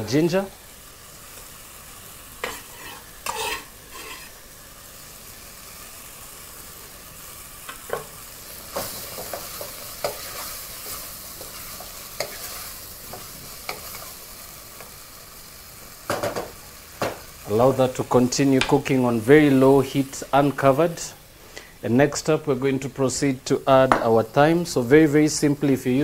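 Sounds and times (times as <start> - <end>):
food sizzling in a pot: 0.0 - 26.0
wooden spoon scraping a pot: 2.4 - 4.4.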